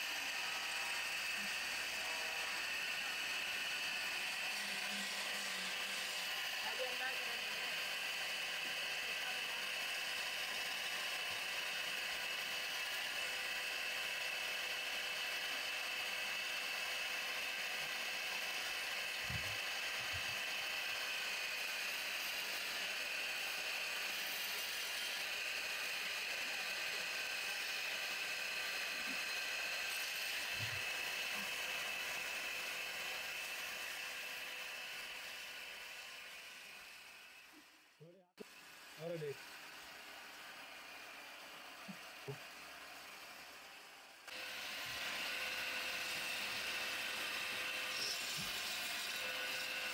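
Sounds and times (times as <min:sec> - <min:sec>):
wood lathe motor hum: 0:00.0 - 0:37.8, 0:38.4 - 0:49.9
chisel scraping spinning wood: 0:44.4 - 0:49.9.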